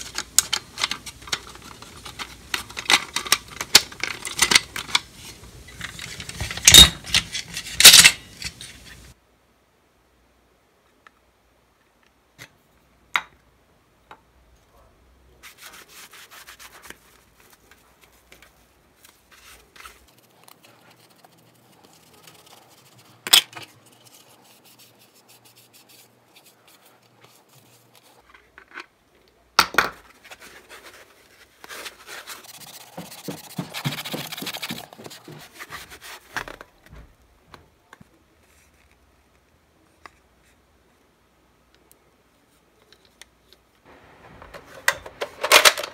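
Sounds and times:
plastic toy clicks and knocks: 0.0s - 5.1s, 44.5s - 45.9s
rubbing on plastic shell: 30.1s - 36.7s.

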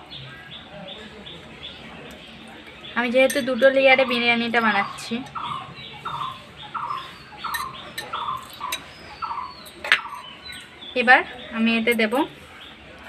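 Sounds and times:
small animal chirping: 4.0s - 10.7s.

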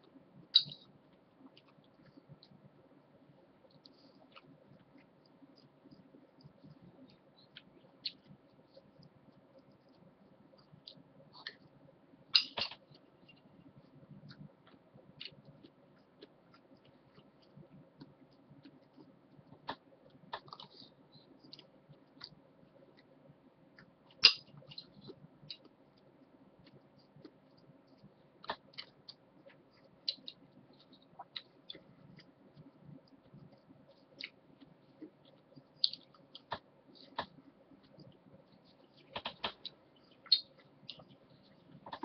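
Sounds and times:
faint steady hum: 0.0s - 42.0s
soft chewing: 0.0s - 42.0s.

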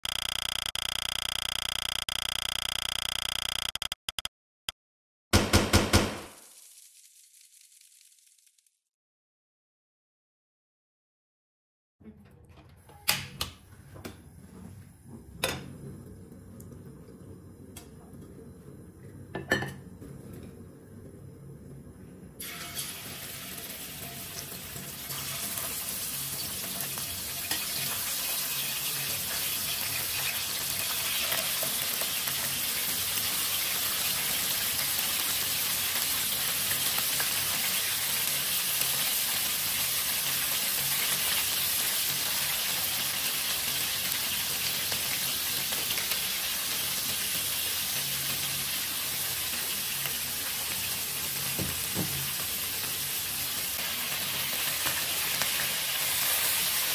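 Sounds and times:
meat sizzling in hot oil: 6.3s - 8.6s, 22.4s - 56.9s.

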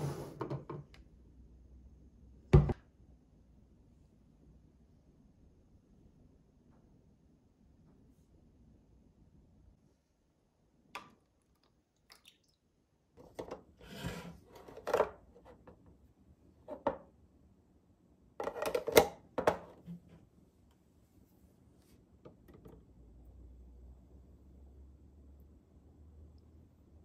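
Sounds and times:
plastic containers knocking and clicking: 18.4s - 20.0s.

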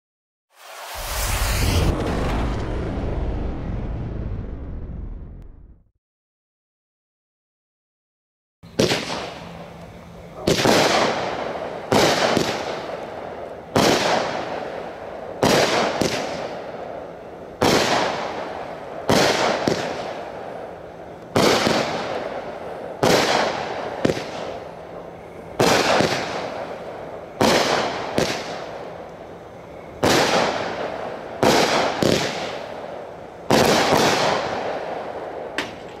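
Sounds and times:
firework bangs with hiss: 0.5s - 3.6s, 8.7s - 9.7s, 10.3s - 36.0s.

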